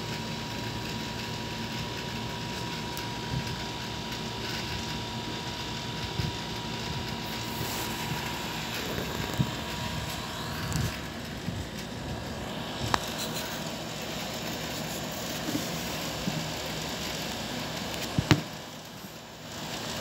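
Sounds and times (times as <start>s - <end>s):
low rumbling noise: 4.7s - 18.9s.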